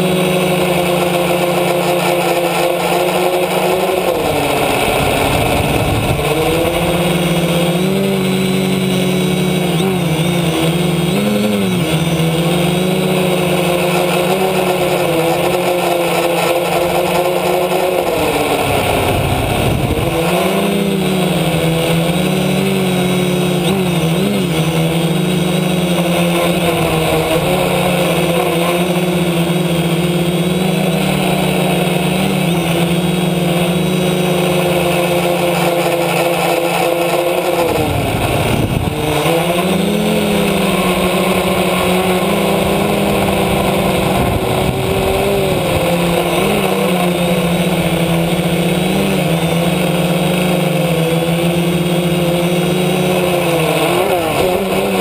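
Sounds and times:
drone propellers buzzing: 0:00.0 - 0:55.0
rushing noise: 0:02.8 - 0:54.9.

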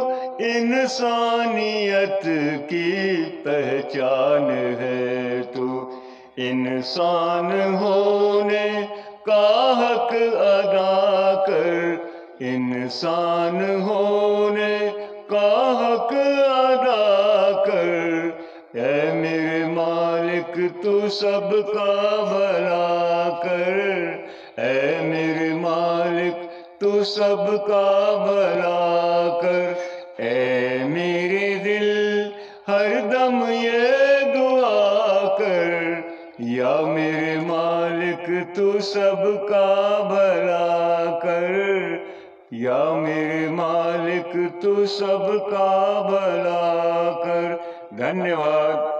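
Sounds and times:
man singing into microphone: 0:00.0 - 0:48.9
breaths: 0:00.1 - 0:00.4, 0:05.8 - 0:06.4, 0:08.8 - 0:09.3, 0:12.0 - 0:12.4, 0:14.9 - 0:15.3, 0:18.3 - 0:18.8, 0:24.2 - 0:24.6, 0:26.4 - 0:26.8, 0:29.7 - 0:30.2, 0:32.3 - 0:32.7, 0:36.0 - 0:36.4, 0:42.0 - 0:42.5, 0:47.5 - 0:48.0.

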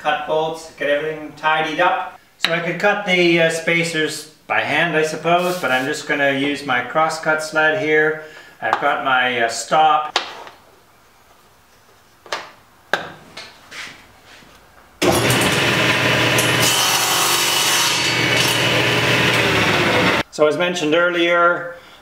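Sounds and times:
table saw cutting wood: 0:15.0 - 0:20.2.

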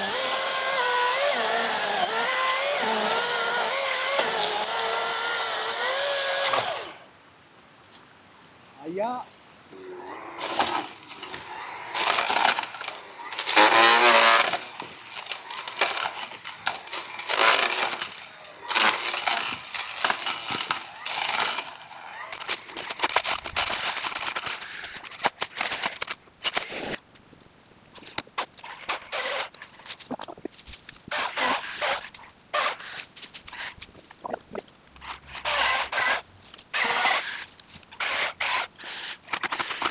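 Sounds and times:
branches crunching and snapping: 0:10.2 - 0:28.7.

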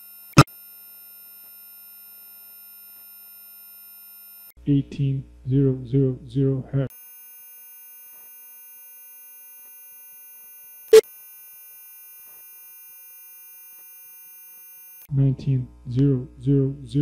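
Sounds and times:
high-pitched sine test tone: 0:00.0 - 0:04.5, 0:06.9 - 0:15.1.

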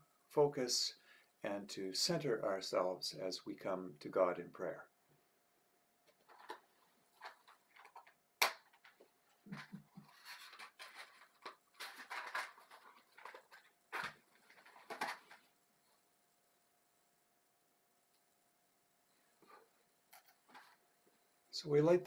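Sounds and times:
scratchy scraping rustles: 0:09.6 - 0:15.5.

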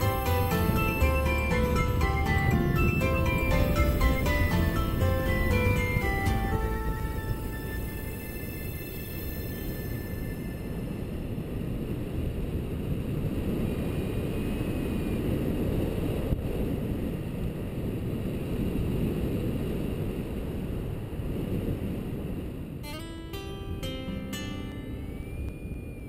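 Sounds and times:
wind rushing over microphone: 0:00.0 - 0:26.0
plucked acoustic guitar: 0:22.8 - 0:25.3.

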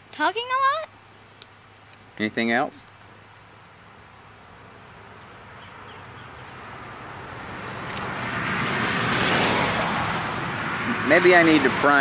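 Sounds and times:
vehicle approaching: 0:04.6 - 0:12.0.

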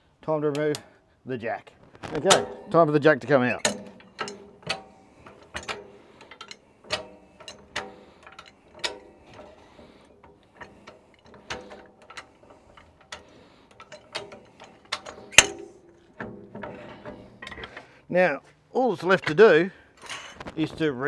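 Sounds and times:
jack ratchet clacking: 0:02.2 - 0:17.9.

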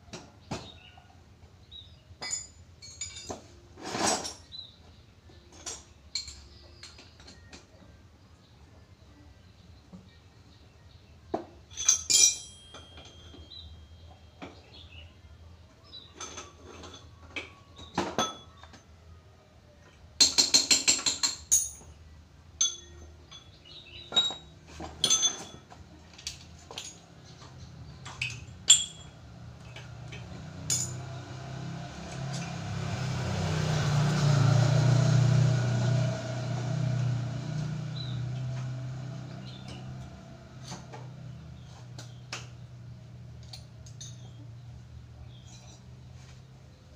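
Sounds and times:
metal tools clinking: 0:02.2 - 0:04.6, 0:05.5 - 0:07.6, 0:11.6 - 0:14.5, 0:15.9 - 0:18.8, 0:20.2 - 0:22.0, 0:22.6 - 0:33.8, 0:43.4 - 0:46.4.

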